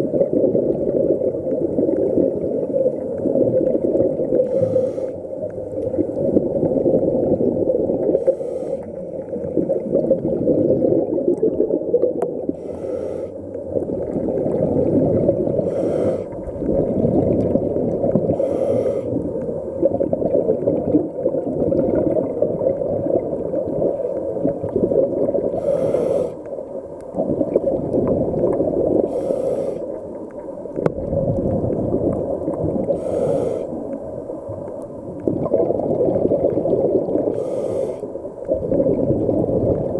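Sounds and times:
underwater bubbles gurgling: 0.0s - 39.9s
regulator hiss: 4.4s - 5.2s, 12.6s - 13.4s, 15.6s - 16.4s, 18.3s - 19.2s, 25.5s - 26.4s, 29.1s - 30.0s, 32.9s - 33.8s, 37.3s - 38.1s.

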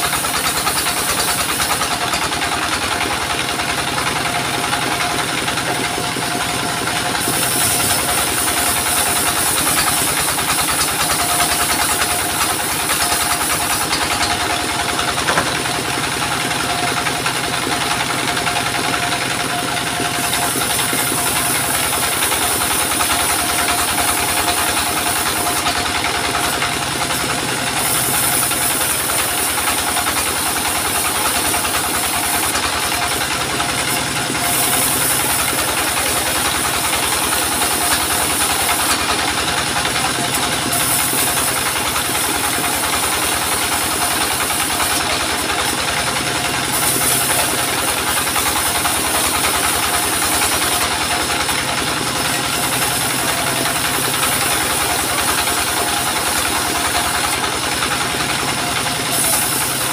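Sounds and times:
diesel engine running: 0.0s - 59.9s
saw blade rasping through wood: 0.0s - 59.9s
saw blade whine: 4.4s - 51.4s.

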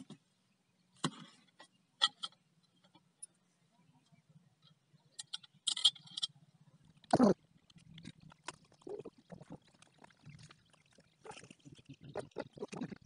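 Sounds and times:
metal pipe and chain clicks: 5.2s - 6.4s.

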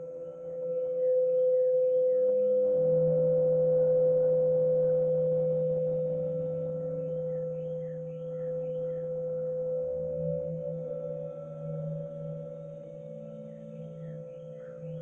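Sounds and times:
pure bowl-like tone: 0.0s - 15.0s
faint bird-like chirps: 5.9s - 15.0s.

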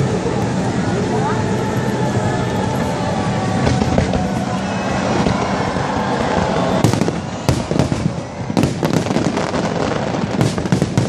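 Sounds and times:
continuous noisy rumble: 0.0s - 11.0s
fireworks bangs: 2.2s - 11.0s.

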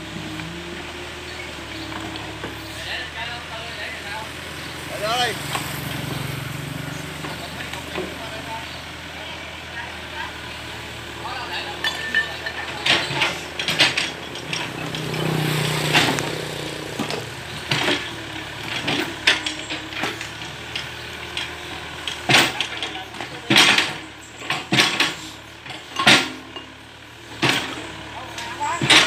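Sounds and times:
excavator diesel engine running: 0.0s - 29.0s
stone and brick clinking: 11.7s - 16.3s.

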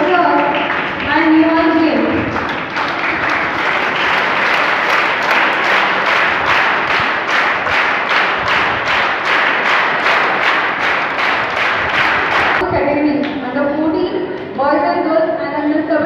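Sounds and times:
children applauding: 0.0s - 12.6s.

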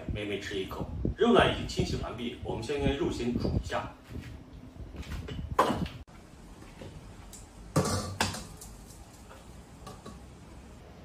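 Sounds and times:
plate and wok knocking: 7.8s - 8.5s.

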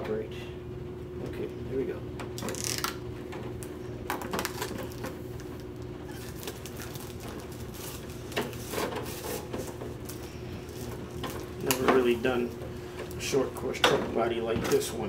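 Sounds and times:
plastic film crackling: 2.4s - 3.0s, 4.1s - 13.7s.

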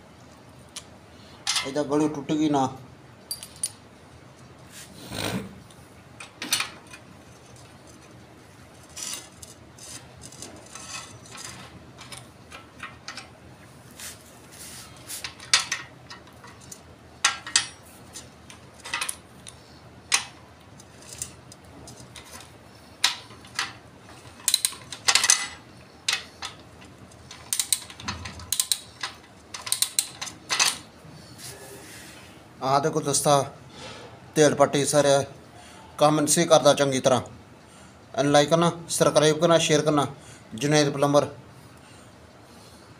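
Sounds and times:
metal tools clinking: 3.3s - 3.8s.

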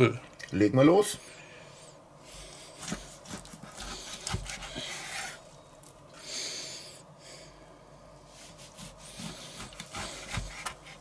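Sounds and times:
knife rasping through meat: 2.8s - 5.4s, 8.4s - 11.0s.

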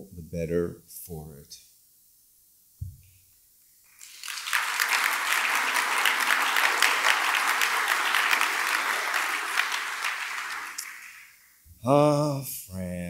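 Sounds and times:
audience applauding: 4.0s - 11.4s.

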